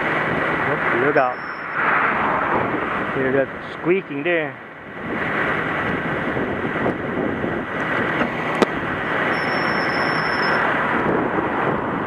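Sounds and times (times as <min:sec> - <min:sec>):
thin high squeal: 0:01.2 - 0:01.8, 0:09.3 - 0:10.7
high squeaking from towing rig: 0:09.3 - 0:10.6.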